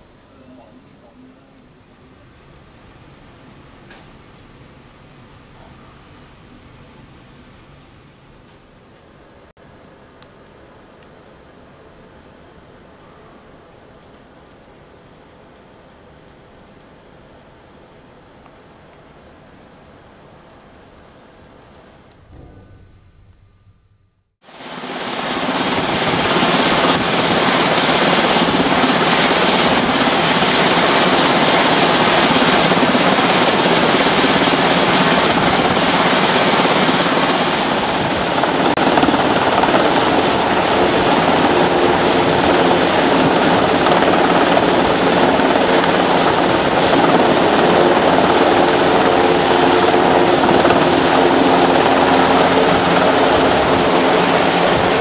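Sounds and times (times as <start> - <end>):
high turbine whine: 20.2 - 55.0
helicopter engines and rotor: 24.4 - 55.0.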